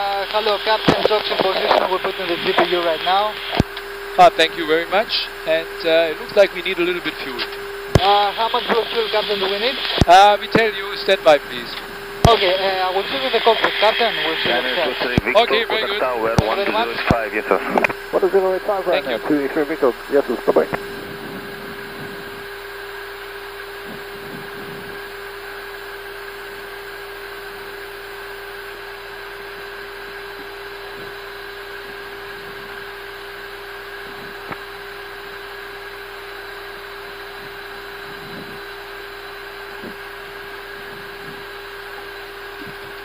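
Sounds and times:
ventilation fan noise: 0:00.0 - 0:22.8
steady electrical hum: 0:00.0 - 0:43.0.

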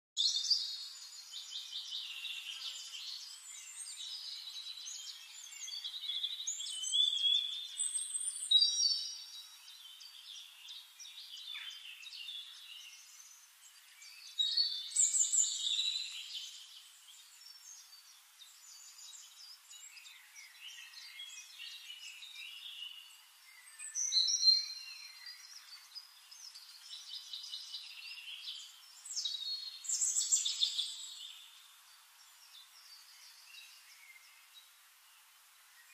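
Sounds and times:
songbirds singing: 0:00.2 - 0:35.9.

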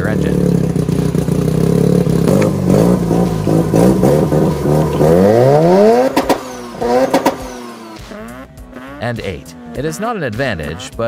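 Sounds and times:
rotary engine revving: 0:00.0 - 0:11.0
sharp exhaust cracks: 0:00.0 - 0:11.0.

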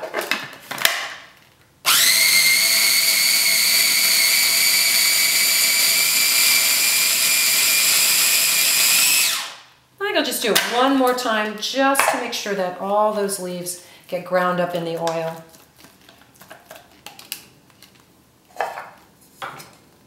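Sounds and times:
food chopper motor whining: 0:01.9 - 0:09.6.

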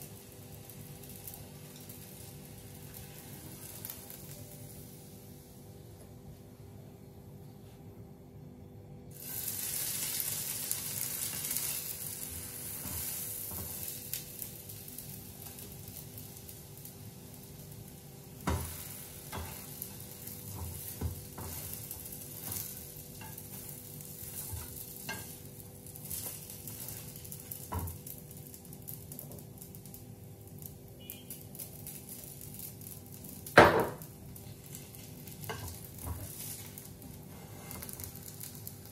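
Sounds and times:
egg sizzling in oil: 0:00.0 - 0:05.8, 0:09.1 - 0:38.9
utensil scraping a pan: 0:34.7 - 0:38.4.

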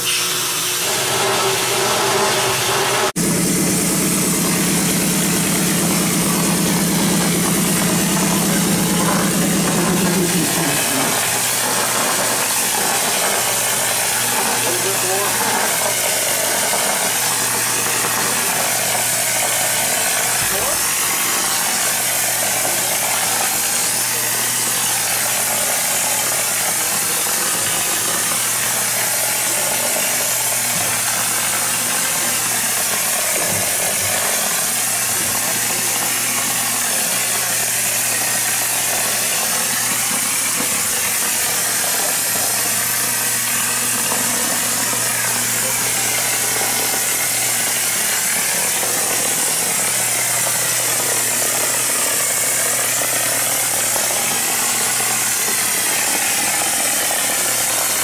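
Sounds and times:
low machine hum: 0:00.0 - 0:50.1
spray gun hissing: 0:00.1 - 0:27.7.

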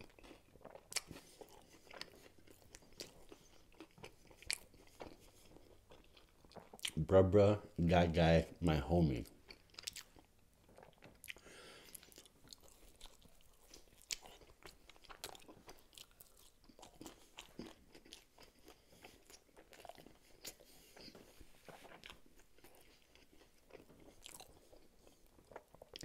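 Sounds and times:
close chewing with crunchy clicks: 0:00.0 - 0:07.1, 0:09.1 - 0:26.0
wet mouth sounds: 0:00.7 - 0:05.9.

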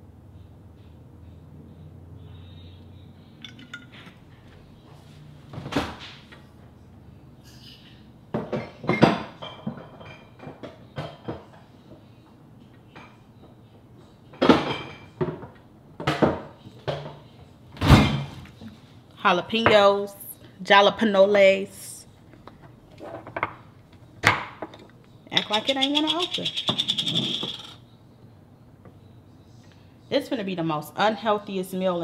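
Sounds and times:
dishes and glass jars clinking: 0:03.4 - 0:04.3, 0:08.4 - 0:11.5, 0:14.4 - 0:15.5, 0:24.3 - 0:27.8.

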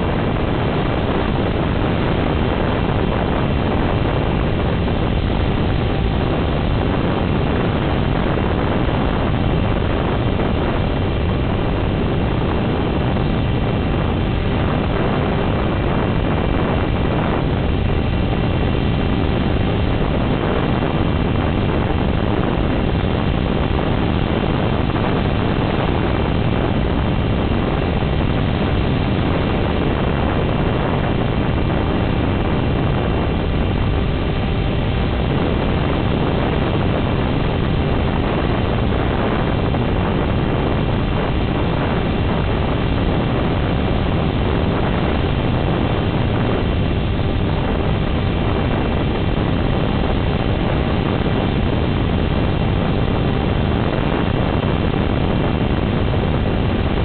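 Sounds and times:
rushing wind: 0:00.0 - 0:57.0.

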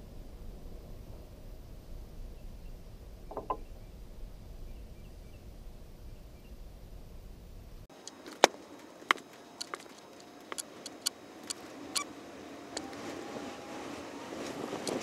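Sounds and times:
low rumble: 0:00.0 - 0:07.9.

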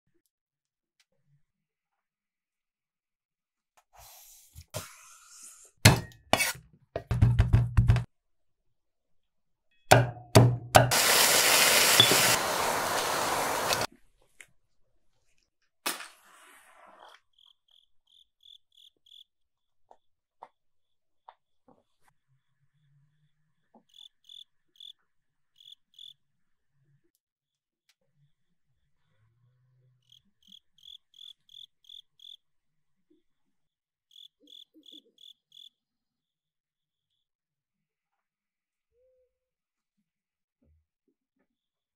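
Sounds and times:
hiss: 0:10.9 - 0:13.9
vegetables sizzling in a wok: 0:10.9 - 0:13.9
cricket chirping: 0:17.3 - 0:19.3, 0:23.9 - 0:26.2, 0:30.0 - 0:32.4, 0:34.1 - 0:35.8.

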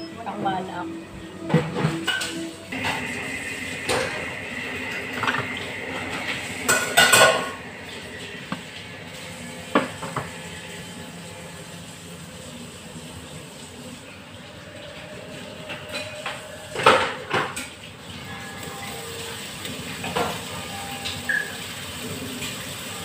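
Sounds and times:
cookware and utensils clattering: 0:00.0 - 0:11.0, 0:14.7 - 0:23.0
thin steady high tone: 0:18.2 - 0:21.8.

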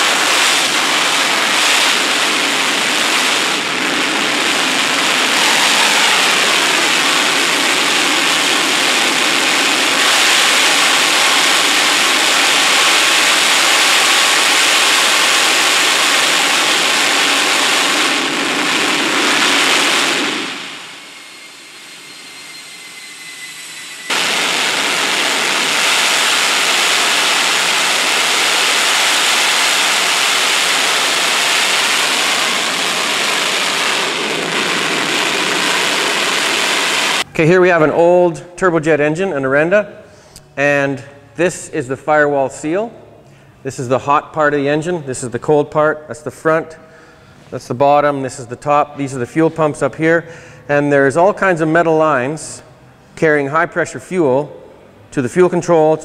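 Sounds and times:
jet engine roaring: 0:00.0 - 0:37.4
high whistle falling in pitch: 0:05.2 - 0:07.6, 0:20.8 - 0:24.1.

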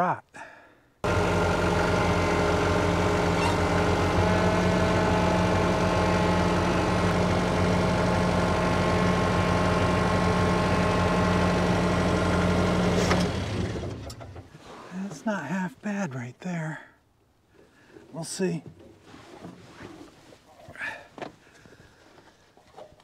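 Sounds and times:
sawmill engine running: 0:01.0 - 0:14.2.

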